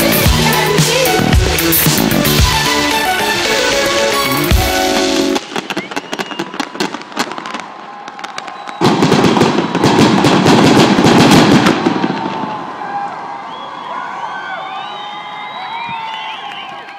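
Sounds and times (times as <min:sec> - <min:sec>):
fireworks crackling and banging: 0:00.9 - 0:13.0.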